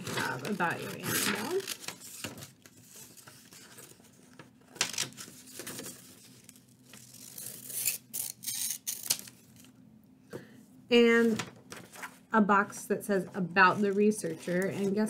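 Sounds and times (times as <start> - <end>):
scissors cutting paper: 0.0 - 4.1, 5.2 - 9.7, 13.7 - 15.0.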